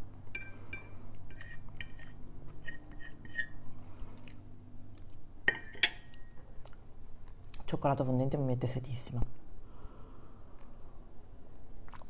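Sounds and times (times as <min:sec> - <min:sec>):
cutlery clinking on a plate: 0:05.5 - 0:06.4.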